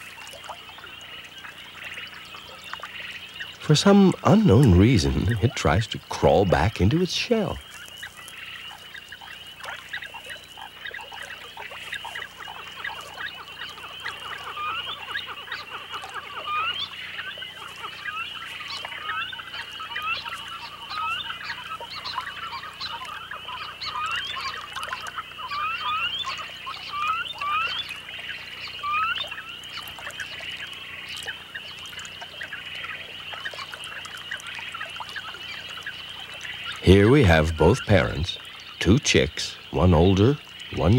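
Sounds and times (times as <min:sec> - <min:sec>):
birds chirping: 0:00.0 - 0:40.9
steady high hiss: 0:01.1 - 0:15.5, 0:35.5 - 0:40.9.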